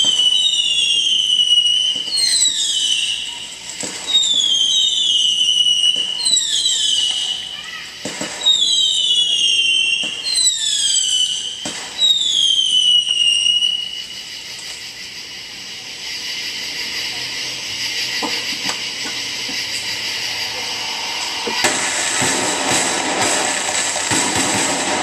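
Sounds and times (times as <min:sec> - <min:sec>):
sharp crackling firework pops: 0:00.0 - 0:14.8, 0:21.0 - 0:25.0
firework whistles falling in pitch: 0:00.0 - 0:15.1, 0:17.8 - 0:25.0
steady firework hiss: 0:00.0 - 0:25.0.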